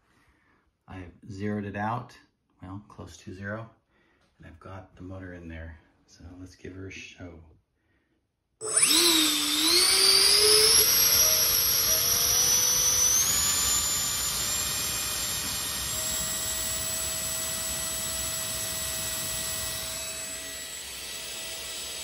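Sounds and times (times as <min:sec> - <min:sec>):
electric ducted fan whine: 0:08.6 - 0:22.0.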